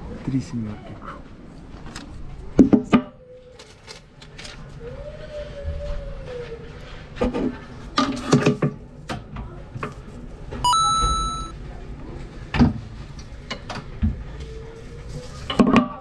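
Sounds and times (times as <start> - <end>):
electronic beep: 10.7 - 11.5.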